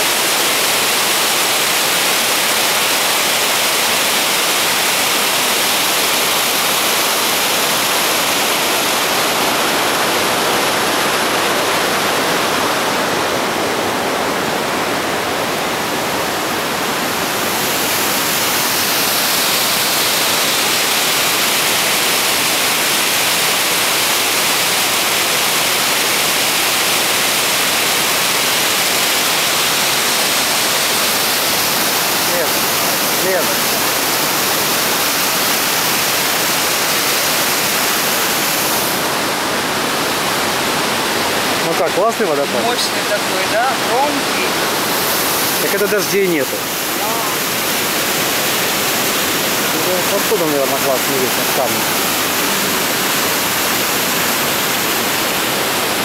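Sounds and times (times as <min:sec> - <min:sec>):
water rushing over boulders: 0:00.0 - 0:56.0.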